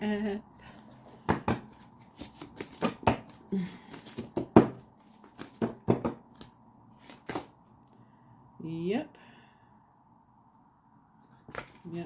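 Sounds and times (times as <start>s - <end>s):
cards tapping and clicking on table: 1.2s - 7.5s, 11.4s - 11.8s.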